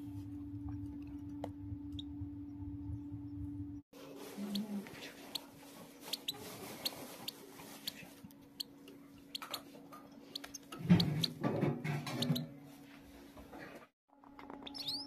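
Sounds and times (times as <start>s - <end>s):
low hum: 0.0s - 3.8s
chick cheeping: 6.1s - 8.0s, 10.3s - 11.4s, 14.7s - 15.0s.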